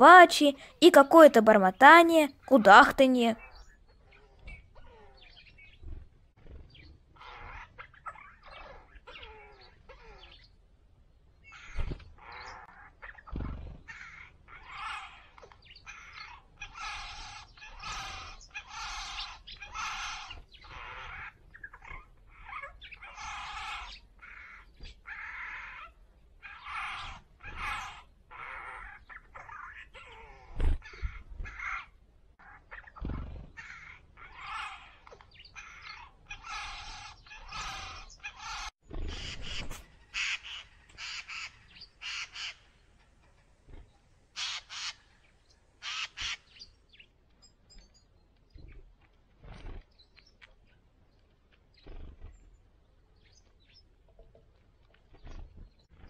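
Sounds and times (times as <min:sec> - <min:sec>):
jay chattering calls: 0:13.9 - 0:42.6, 0:44.4 - 0:45.0, 0:45.8 - 0:46.5.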